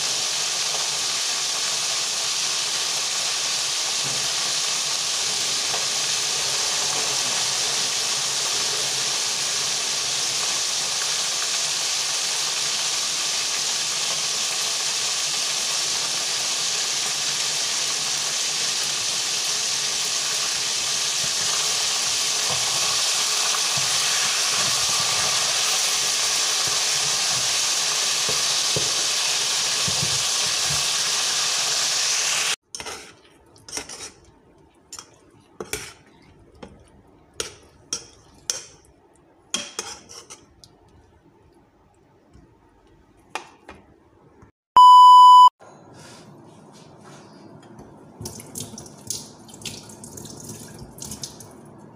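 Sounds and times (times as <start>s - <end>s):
oil sizzling in a pan: 0.0s - 33.1s.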